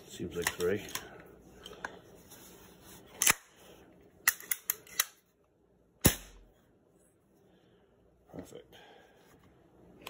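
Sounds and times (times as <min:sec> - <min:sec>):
air rifle loud snap: 0:06.0 - 0:06.5.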